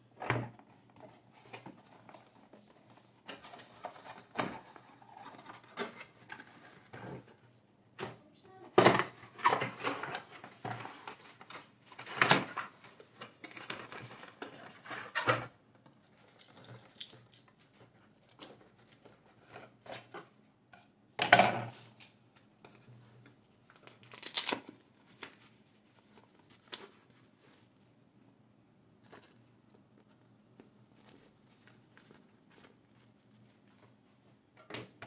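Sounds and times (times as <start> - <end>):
cardboard rustling and scraping: 22.6 - 27.8.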